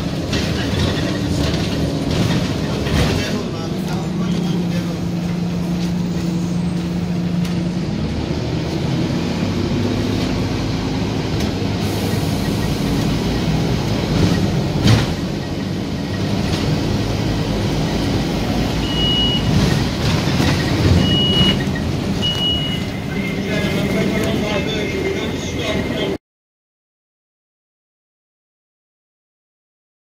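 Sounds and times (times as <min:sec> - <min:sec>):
bus engine and road noise: 0:00.0 - 0:26.2
bus stop-request bell beeps: 0:18.7 - 0:19.5, 0:20.9 - 0:24.2.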